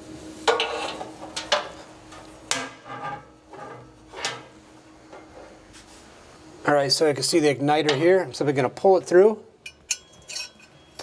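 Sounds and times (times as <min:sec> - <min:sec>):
metallic clanks and rattles: 0:09.7 - 0:10.7.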